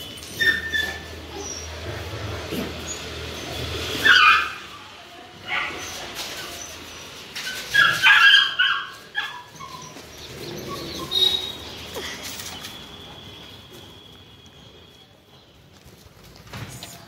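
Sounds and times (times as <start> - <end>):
puppies yelping: 0.3 - 4.8, 5.5 - 12.6.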